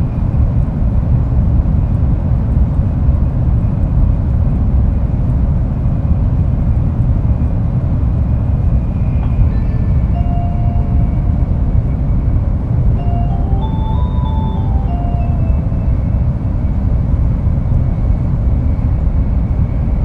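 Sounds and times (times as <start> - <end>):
train rumble inside passenger car: 0.0 - 20.0
steady electronic tones: 10.1 - 11.7, 13.0 - 16.6.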